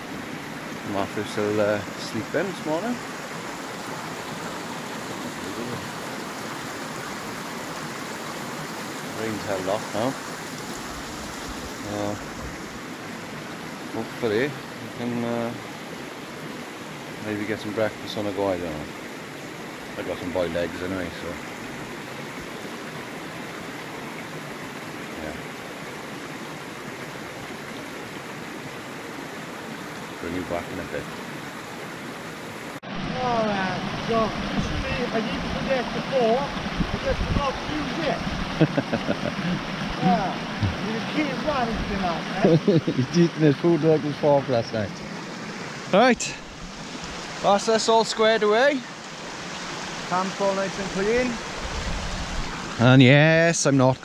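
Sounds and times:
river water rushing: 0.0s - 54.0s.

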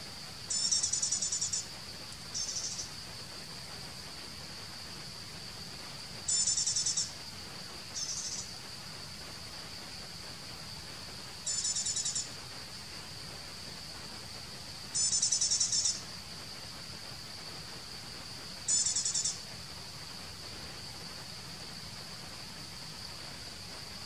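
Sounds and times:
rapidly pulsing insect trills: 0.0s - 24.0s
high-pitched insect drone: 0.4s - 3.0s, 6.3s - 7.1s, 7.9s - 8.6s, 11.4s - 12.4s, 15.0s - 16.0s, 18.7s - 19.4s.

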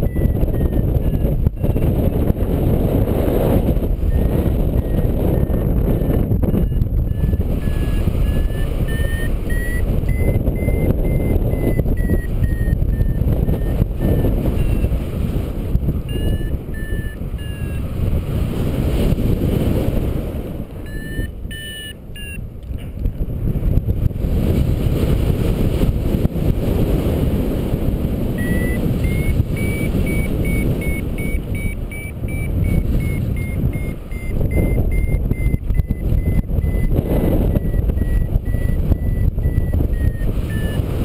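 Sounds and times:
variometer beeping: 0.0s - 15.1s, 15.8s - 18.0s, 20.7s - 22.5s, 28.3s - 41.0s
wind rushing over microphone: 0.0s - 41.0s.

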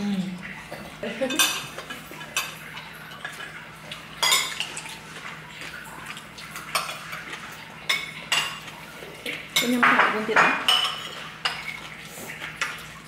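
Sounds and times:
cutlery clinking against dishes: 1.3s - 2.6s, 4.2s - 4.8s, 6.6s - 11.9s.

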